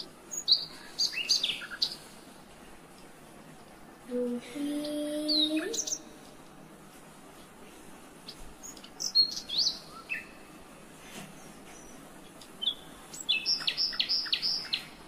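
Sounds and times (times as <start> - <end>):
small birds chirping: 0.0 - 2.5, 4.2 - 6.4, 8.2 - 15.0.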